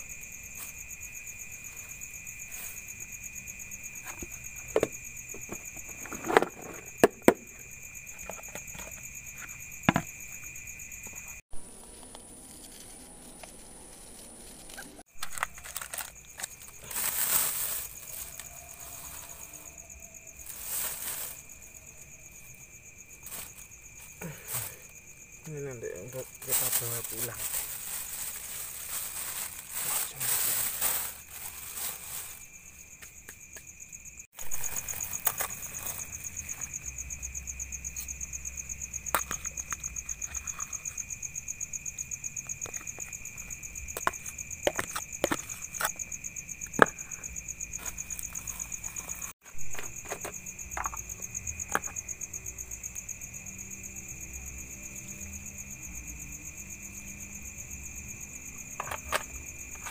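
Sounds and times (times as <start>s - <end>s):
crickets chirping: 0.0s - 59.9s
plastic bag rustling: 11.6s - 25.0s, 26.0s - 32.9s, 34.4s - 36.8s.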